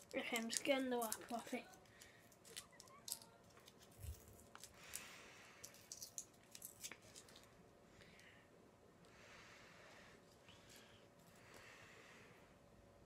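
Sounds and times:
plastic wrapper crinkling: 0:00.0 - 0:05.0.

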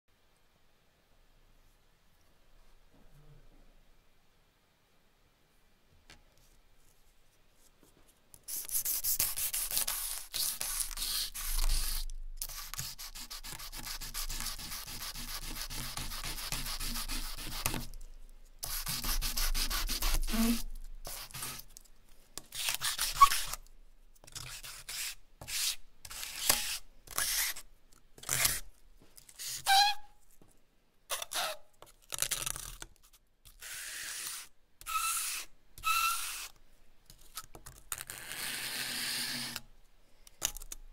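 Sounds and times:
charcoal scratching on paper: 0:08.4 - 0:18.0, 0:18.6 - 0:21.7, 0:22.4 - 0:23.6, 0:24.2 - 0:27.6.

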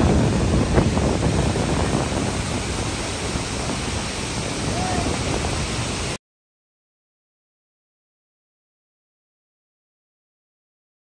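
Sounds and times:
wind buffeting microphone: 0:00.0 - 0:06.2.

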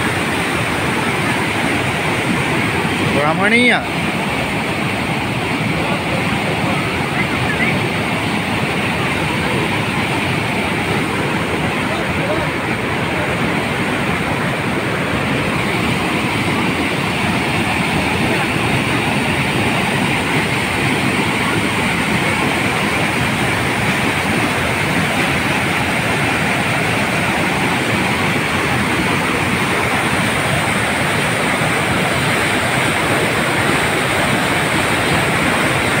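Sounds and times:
water rushing over weir: 0:00.0 - 0:36.0.

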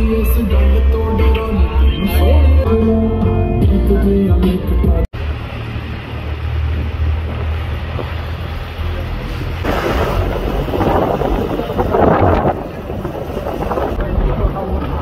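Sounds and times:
vehicle engine and road rumble: 0:00.0 - 0:15.0
wind buffeting microphone: 0:05.6 - 0:15.0.

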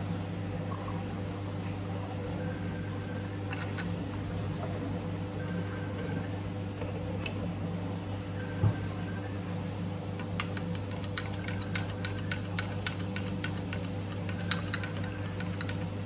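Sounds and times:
steady low hum: 0:00.0 - 0:16.0
spoon ticking against glass: 0:03.5 - 0:03.9, 0:10.2 - 0:16.0.

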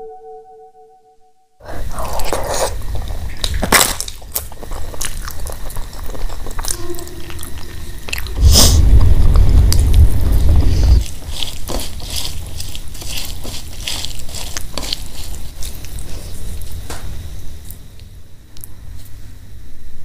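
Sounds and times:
chewing and lip smacks: 0:02.0 - 0:08.4
wet squishing of food: 0:02.0 - 0:10.0, 0:11.0 - 0:16.9
loud low rumble: 0:06.9 - 0:11.4.

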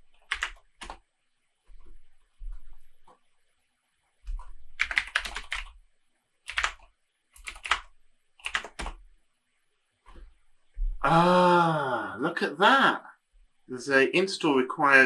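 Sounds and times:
typing on computer keyboard: 0:00.0 - 0:01.0, 0:04.3 - 0:05.8, 0:06.4 - 0:09.0.

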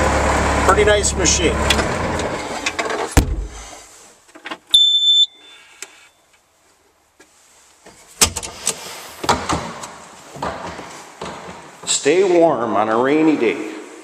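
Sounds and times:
engine rumble: 0:00.0 - 0:03.9
knocks and rattles in cab: 0:02.8 - 0:03.7
thump: 0:03.1 - 0:03.8
high electronic beep: 0:04.8 - 0:06.2.

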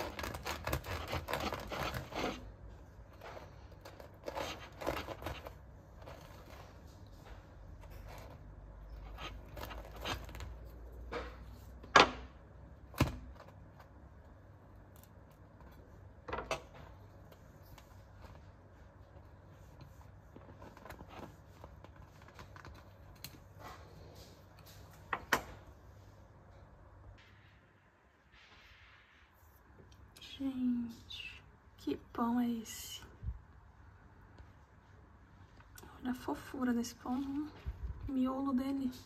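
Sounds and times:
crusty bread crackling: 0:00.0 - 0:11.9, 0:12.5 - 0:25.2.

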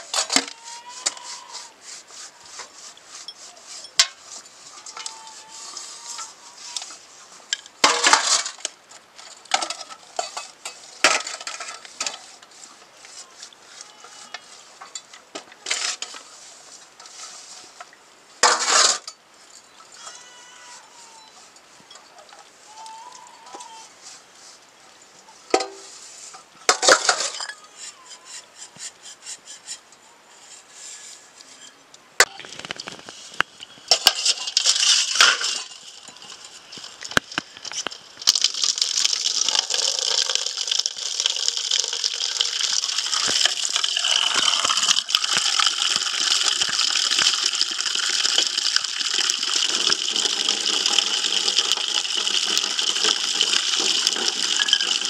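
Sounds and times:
cookware clinking and scraping: 0:09.6 - 0:12.3, 0:18.4 - 0:19.2, 0:26.7 - 0:28.4, 0:33.9 - 0:36.6, 0:49.7 - 0:55.0.

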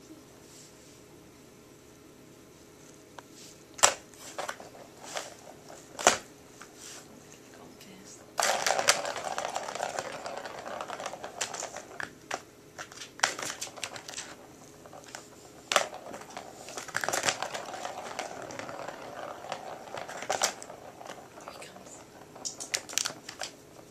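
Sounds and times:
plastic ball rattling around track: 0:03.8 - 0:06.3, 0:08.4 - 0:23.9.

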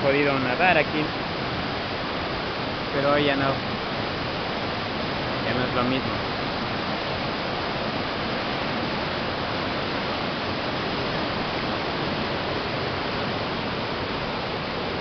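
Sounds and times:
river rushing through rapids: 0:00.0 - 0:15.0.

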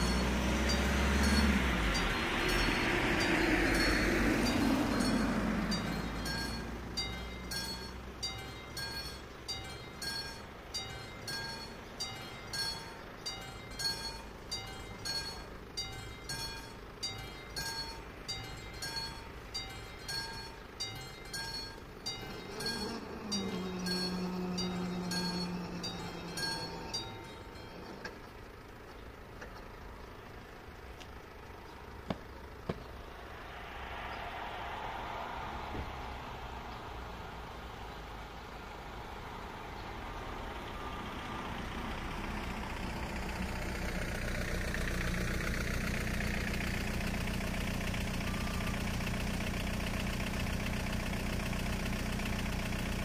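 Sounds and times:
car passing: 0:00.0 - 0:08.4, 0:22.0 - 0:28.2, 0:31.3 - 0:47.0
level crossing bell ringing: 0:00.0 - 0:28.3.

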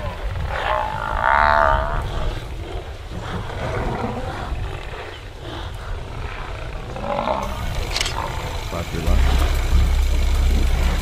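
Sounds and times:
lion growling: 0:00.0 - 0:11.0
steady low rumble: 0:07.4 - 0:11.0.

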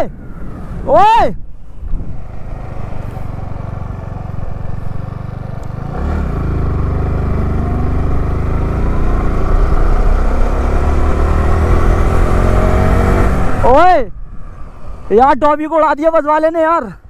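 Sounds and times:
motorcycle engine accelerating: 0:01.8 - 0:15.2.

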